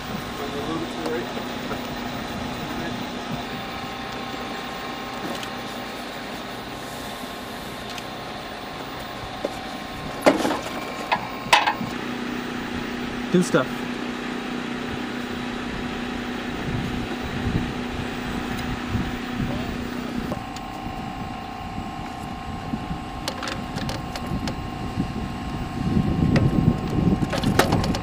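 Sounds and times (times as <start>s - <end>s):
machine hum: 0.0s - 28.0s.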